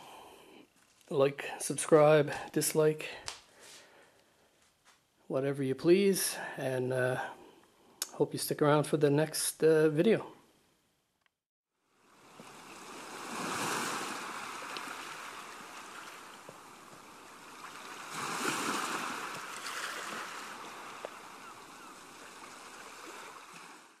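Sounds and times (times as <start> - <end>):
ocean waves washing on shore: 12.0 - 24.0.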